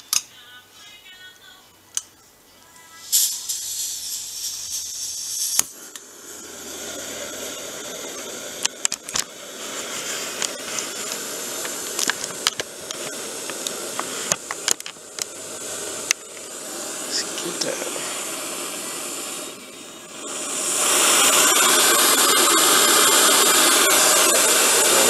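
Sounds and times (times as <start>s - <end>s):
stove burner rushing hiss: 2.9s - 25.0s
gas hissing from valve: 3.0s - 25.0s
burner lighting click: 10.0s - 15.4s
scattered clicks and knocks: 10.4s - 15.3s.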